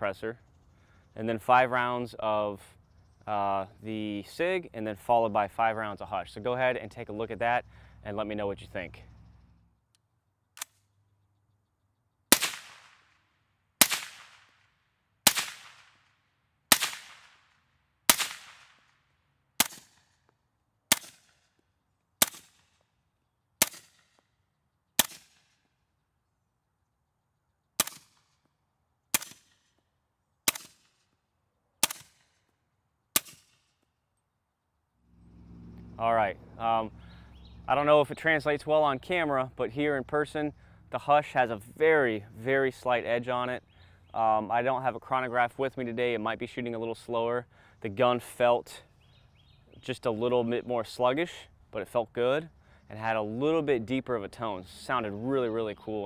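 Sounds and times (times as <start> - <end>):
suppressed rifle shots: 12.3 - 13.2, 13.8 - 14.6, 15.2 - 19.0, 19.6 - 20.2, 20.9 - 21.5, 22.2 - 22.8, 23.6 - 24.2, 25.0 - 25.7, 27.8 - 28.4, 29.1 - 29.7, 30.4 - 31.0, 31.8 - 32.4, 33.1 - 33.7.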